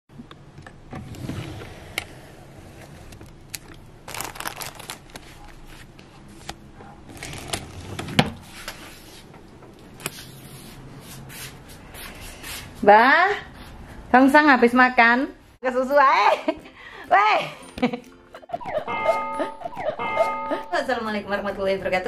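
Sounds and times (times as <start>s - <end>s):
paper envelopes rustling: 3.4s - 8.0s.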